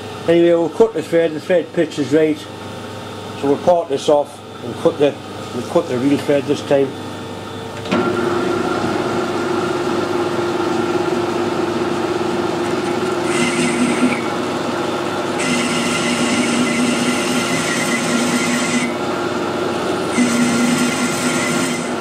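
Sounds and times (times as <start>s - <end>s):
metal lathe humming: 7.9s - 22.0s.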